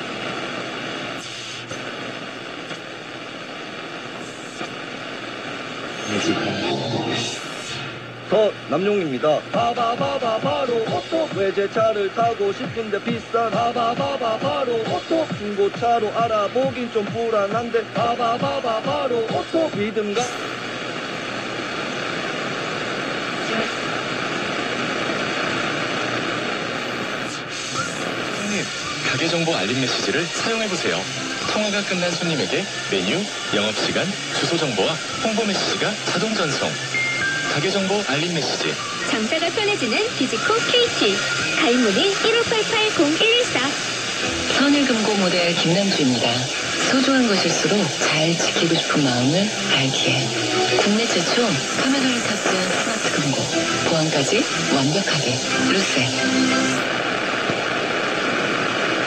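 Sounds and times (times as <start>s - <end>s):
radio static hiss: 0.0s - 59.0s
faint crackles: 56.0s - 59.0s.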